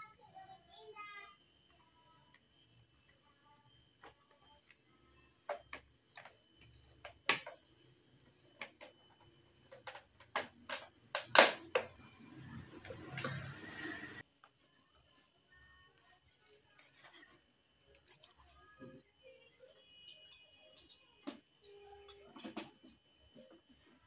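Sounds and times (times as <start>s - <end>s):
clicks and knocks of scooter parts: 9.7s - 12.0s.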